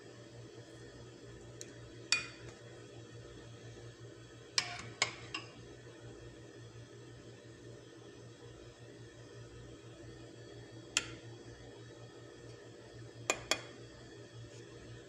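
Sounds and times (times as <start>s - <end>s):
spoon clinking on baking dish: 2.1s - 2.4s, 4.6s - 5.6s.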